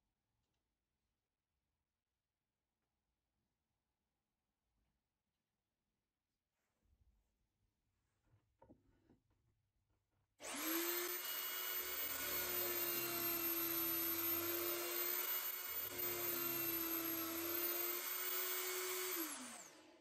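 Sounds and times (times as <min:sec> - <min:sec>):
drill bit boring into plywood: 0:10.4 - 0:20.0
drill press whining: 0:10.4 - 0:20.0
motor winding down: 0:10.4 - 0:20.0.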